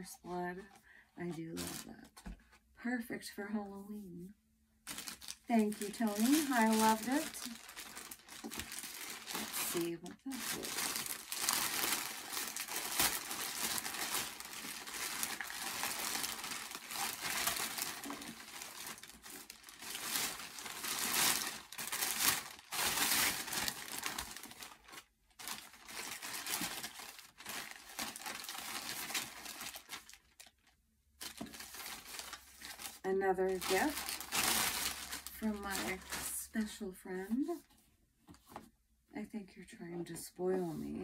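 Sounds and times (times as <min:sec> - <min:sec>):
plastic bags crinkling: 0:01.6 - 0:02.1, 0:04.8 - 0:36.6.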